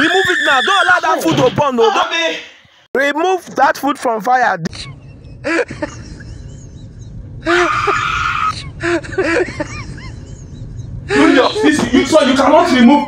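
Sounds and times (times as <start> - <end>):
steady low rumble: 4.7 - 13.0.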